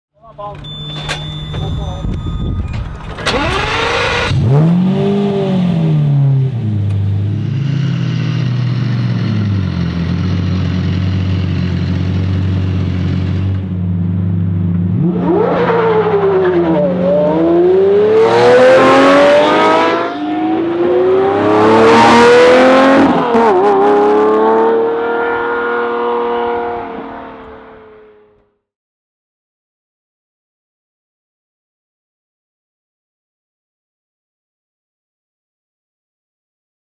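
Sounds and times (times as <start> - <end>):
sports car engine revving: 3.3 - 28.4.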